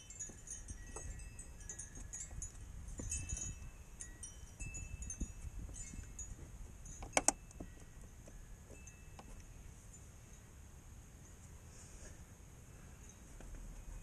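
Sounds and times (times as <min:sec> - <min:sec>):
metallic clinks and jangles: 0:00.0 - 0:10.5.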